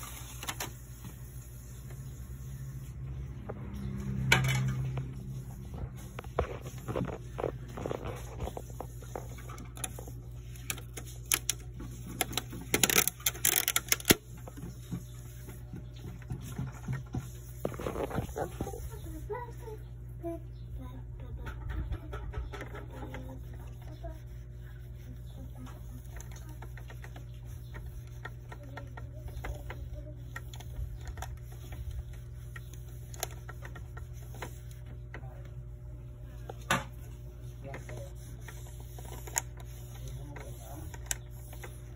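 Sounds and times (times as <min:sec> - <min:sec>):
steady low hum: 0:00.0 - 0:41.9
tissue wiping plastic: 0:05.2 - 0:15.6, 0:17.2 - 0:19.7, 0:23.0 - 0:35.1, 0:37.0 - 0:41.9.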